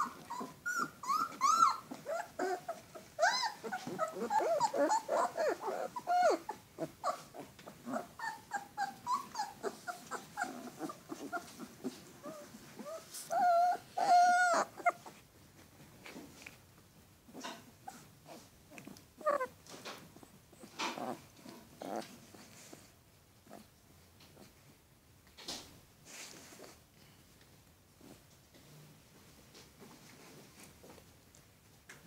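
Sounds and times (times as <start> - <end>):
puppies whining and yelping: 0.0 - 15.2, 17.4 - 19.5.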